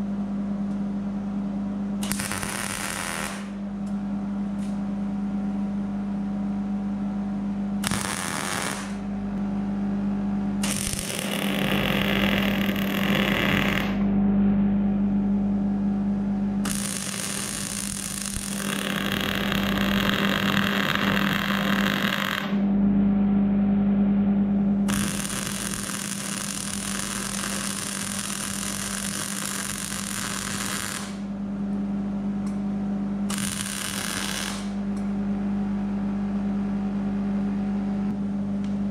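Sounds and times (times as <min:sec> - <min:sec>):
steady low hum: 0:00.0 - 0:38.9
welding arc crackling: 0:02.0 - 0:03.6, 0:07.8 - 0:09.0, 0:10.6 - 0:14.0, 0:16.6 - 0:22.6, 0:24.9 - 0:31.3, 0:33.3 - 0:34.8.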